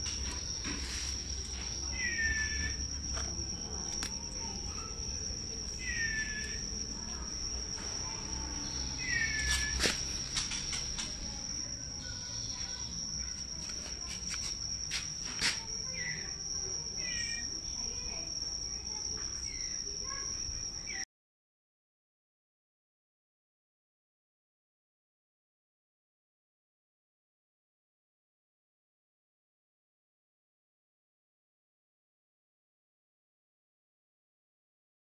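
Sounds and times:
cricket trill: 0.0 - 21.1.

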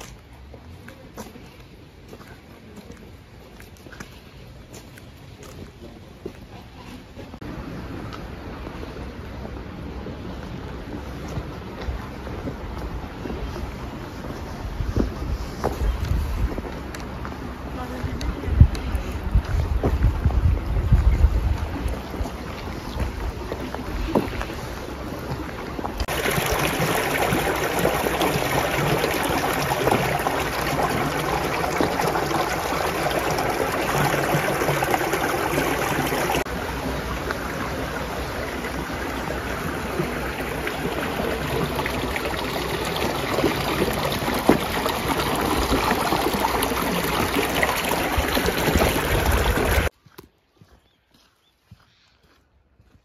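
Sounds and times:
stream water rushing: 7.3 - 49.9.

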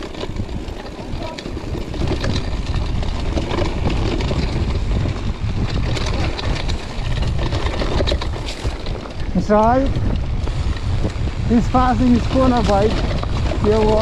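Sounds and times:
bike rattling over bumps: 0.0 - 14.0
bike tyres rumbling on dirt: 0.0 - 14.0
wind on microphone: 0.0 - 14.0.

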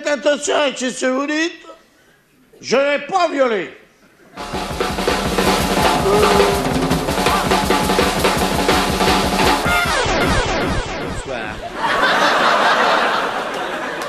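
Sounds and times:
drum-driven music: 4.4 - 11.7.

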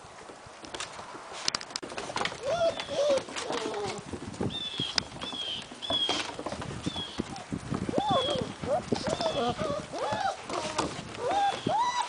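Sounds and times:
puppy whining: 2.4 - 4.1, 7.0 - 12.0.

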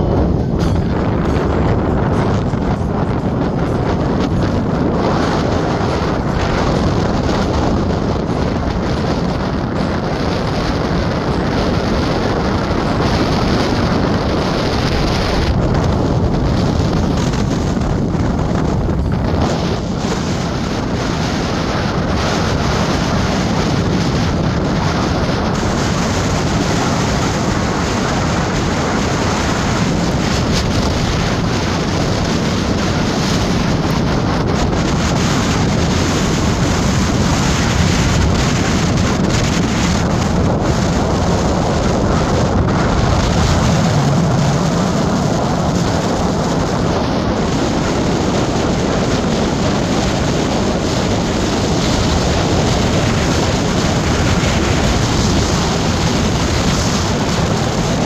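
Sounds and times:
vehicle road noise: 0.0 - 58.0
wind buffeting microphone: 0.0 - 58.0.

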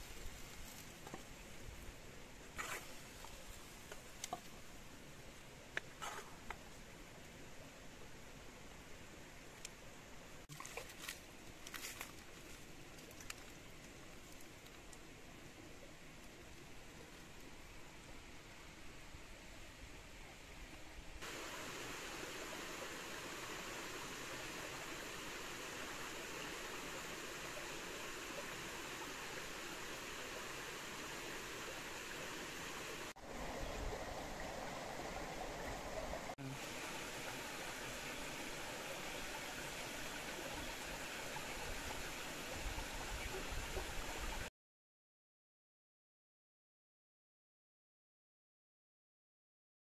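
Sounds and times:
faint outdoor hiss: 0.0 - 44.5
stream rushing over rocks: 21.2 - 44.5.

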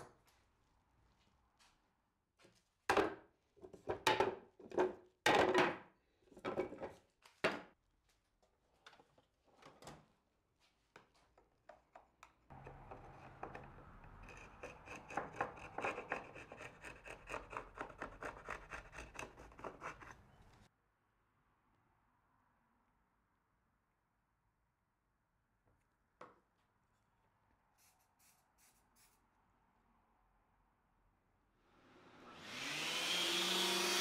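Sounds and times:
chisel scraping wood: 12.5 - 20.7.

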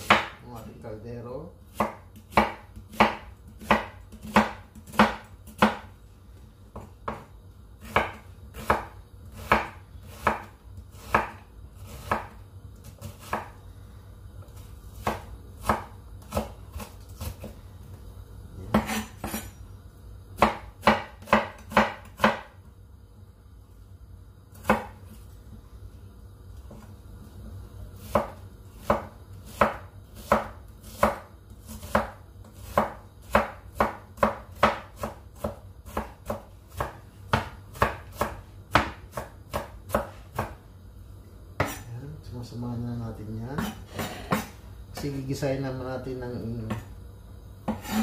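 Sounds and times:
knife chopping on wooden board: 0.0 - 0.4, 1.7 - 5.9, 6.7 - 13.6, 15.0 - 17.5, 18.6 - 19.5, 20.4 - 22.6, 24.5 - 25.0, 28.0 - 40.6, 41.6 - 41.8, 43.6 - 45.1, 47.6 - 48.0
steady low hum: 0.0 - 48.0.

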